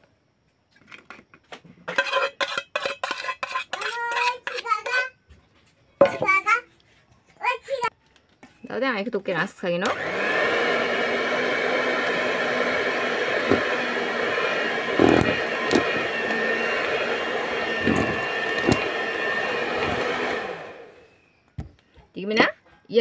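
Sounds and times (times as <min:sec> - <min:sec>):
electric hand mixer running: 0:09.8 - 0:21.2.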